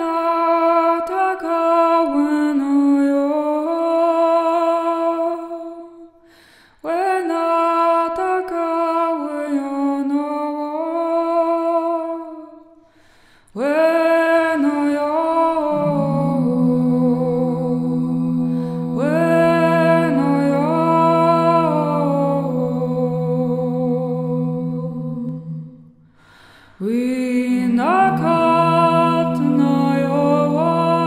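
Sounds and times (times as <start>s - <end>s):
woman singing held tones: 13.6s - 25.9s, 26.8s - 31.0s
low steady tone: 15.7s - 25.9s, 26.9s - 31.0s.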